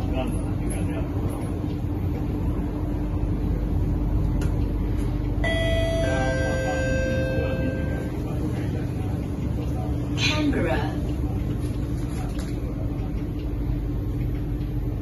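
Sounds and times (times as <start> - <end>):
metro train running rumble: 0.0 - 15.0
two-note chime: 5.4 - 8.1.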